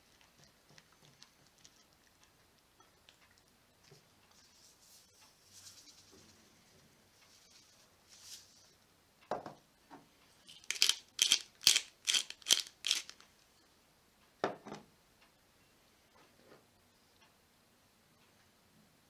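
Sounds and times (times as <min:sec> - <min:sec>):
pepper mill grinding: 0:10.5 - 0:13.2.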